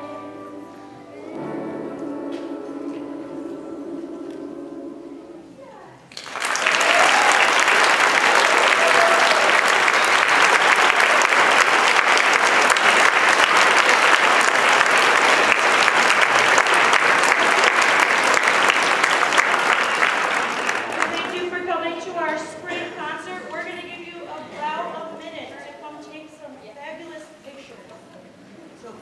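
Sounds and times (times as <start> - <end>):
audience applauding: 6.1 - 21.6.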